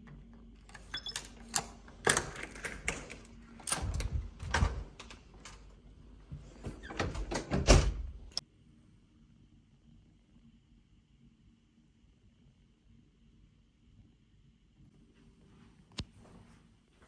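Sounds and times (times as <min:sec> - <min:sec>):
door lock and handle clicking: 0:00.6 - 0:05.7
door thudding as it swings: 0:06.4 - 0:08.1.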